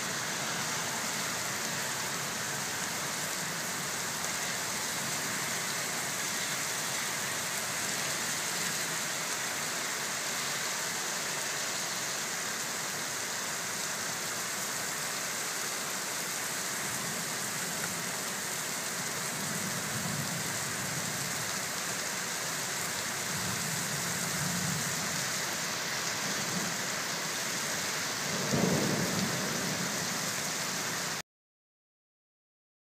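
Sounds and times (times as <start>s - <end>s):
heavy rain on pavement: 0.0s - 31.2s
thunder rumbling: 28.3s - 30.1s.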